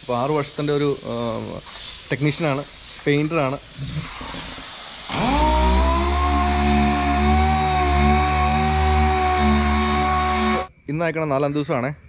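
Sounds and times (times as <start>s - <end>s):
electric motor humming: 5.1s - 10.7s.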